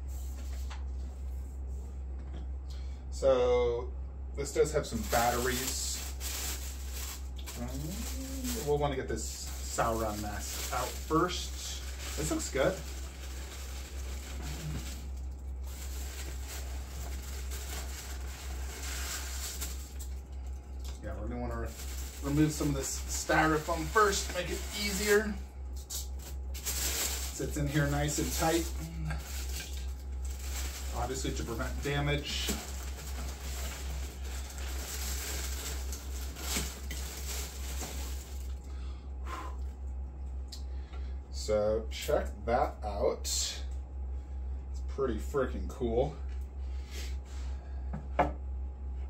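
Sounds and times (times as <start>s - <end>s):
low hum: 0.0s - 49.0s
packaging rustling and knocking: 32.3s - 38.4s.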